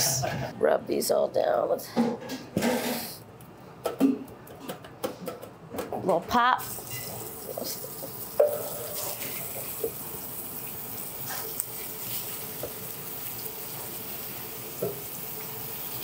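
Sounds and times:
chicken sizzling in hot oil: 6.6 - 16.0.

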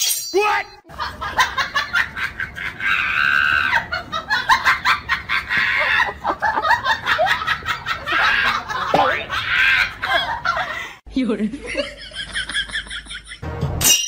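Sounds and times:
person laughing: 0.9 - 13.4.

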